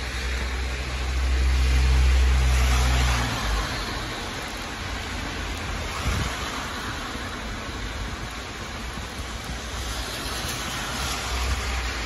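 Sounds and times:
cars passing: 0:00.0 - 0:12.0
heavy rain on wet street: 0:00.0 - 0:12.0.

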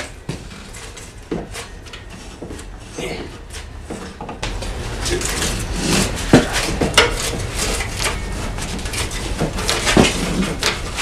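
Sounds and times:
rubber belt scraping metal: 0:00.0 - 0:11.0.

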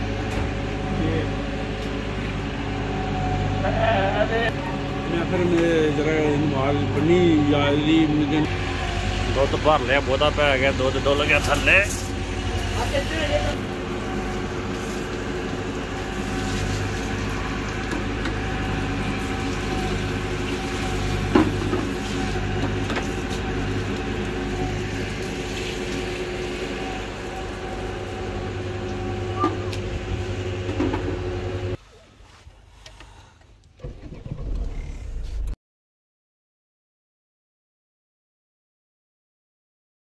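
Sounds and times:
steady machine drone: 0:00.0 - 0:31.8.

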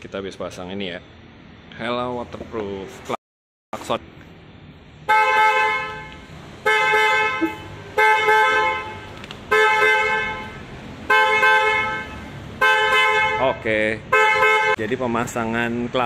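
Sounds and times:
twin-tone car horn honks: 0:05.1 - 0:14.8.

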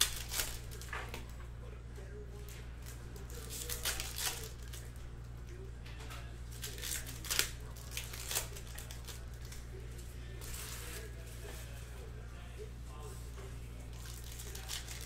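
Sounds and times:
plastic wrapper tearing and crinkling: 0:00.0 - 0:00.9, 0:02.8 - 0:04.9, 0:06.5 - 0:09.7, 0:13.9 - 0:15.0
steady low hum: 0:00.0 - 0:15.0.

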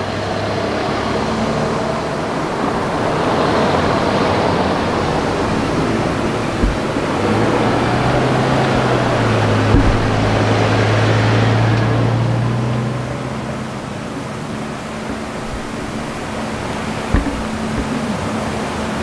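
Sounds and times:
bus engine humming: 0:00.0 - 0:19.0
traffic rumble: 0:00.0 - 0:19.0
brief thump: 0:01.4 - 0:10.9, 0:14.9 - 0:18.2.

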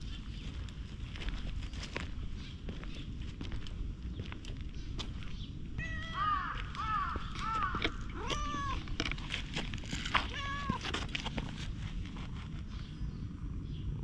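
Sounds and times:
crow cawing: 0:05.8 - 0:08.8.

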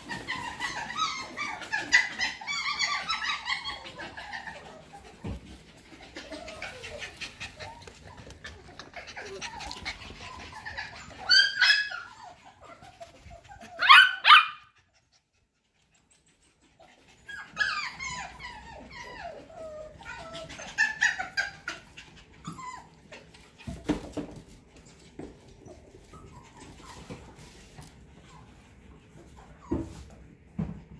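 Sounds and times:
puppy yelps: 0:00.0 - 0:05.0, 0:06.1 - 0:14.8, 0:17.2 - 0:23.3
puppies whining and yipping: 0:00.0 - 0:30.9.

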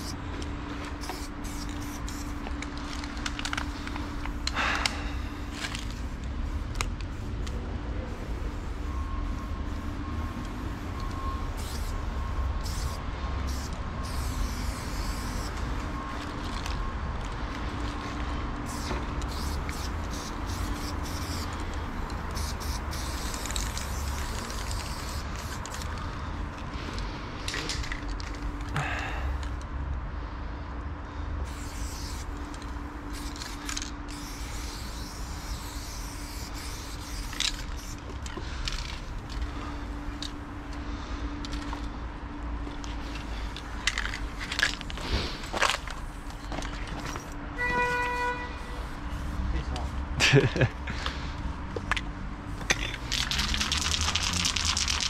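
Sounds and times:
spray paint can hissing: 0:00.9 - 0:04.6, 0:05.2 - 0:16.6, 0:18.6 - 0:26.0, 0:31.4 - 0:39.4, 0:52.5 - 0:55.0.

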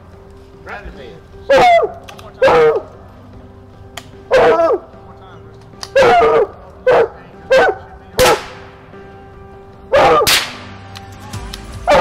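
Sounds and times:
dog barking: 0:01.5 - 0:02.9, 0:04.3 - 0:04.8, 0:05.9 - 0:08.4, 0:09.9 - 0:10.3
rifle shots: 0:08.2 - 0:08.7, 0:10.2 - 0:10.8.

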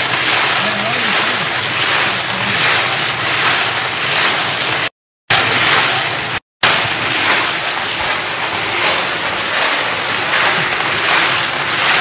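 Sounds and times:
cement mixer drum turning: 0:00.0 - 0:12.0
metal cases tumbling and rattling: 0:00.0 - 0:12.0.

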